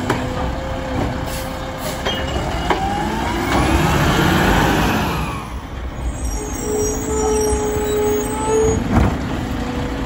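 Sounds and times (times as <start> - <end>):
truck engine accelerating: 0.2 - 5.9.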